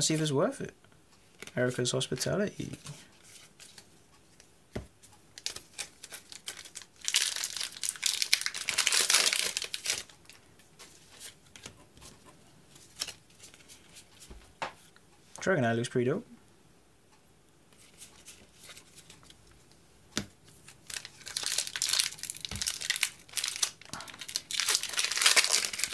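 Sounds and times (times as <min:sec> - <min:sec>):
foil wrapper tearing and crinkling: 0:05.4 - 0:10.1, 0:20.8 - 0:25.9.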